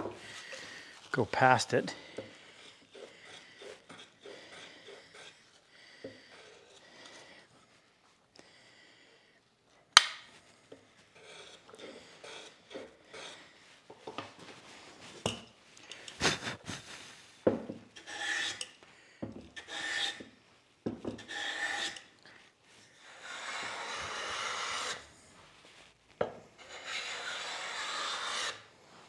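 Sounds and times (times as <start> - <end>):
hand plane rasping on wood: 2.2 - 5.6, 11.2 - 13.5, 18.0 - 18.7, 19.6 - 20.2, 21.2 - 22.0, 23.0 - 25.0, 26.6 - 28.6.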